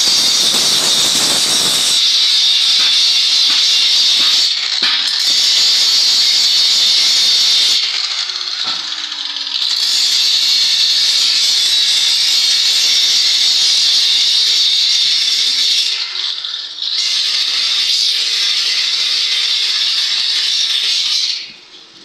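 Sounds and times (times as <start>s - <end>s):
arc welding hiss: 0.0s - 7.8s.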